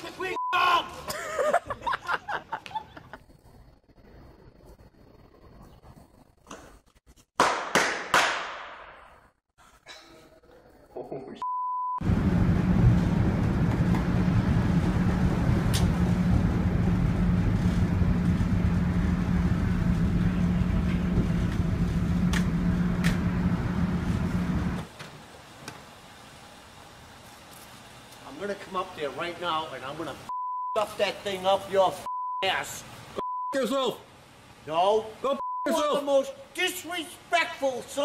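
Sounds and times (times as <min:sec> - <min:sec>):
subway car rumble: 0:12.0 - 0:24.9.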